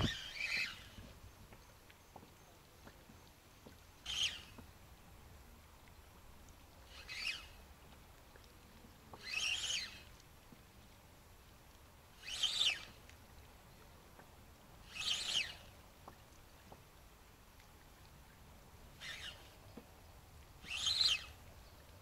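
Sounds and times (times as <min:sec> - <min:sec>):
spinning reel cranking: 0:06.9 - 0:07.6, 0:09.2 - 0:10.1, 0:12.2 - 0:12.9, 0:14.9 - 0:15.6, 0:19.0 - 0:19.5, 0:20.6 - 0:21.4.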